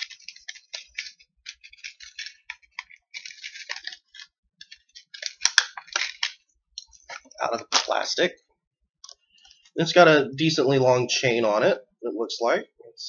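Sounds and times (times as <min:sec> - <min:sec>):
plastic packaging crinkling: 0:00.0 - 0:08.1.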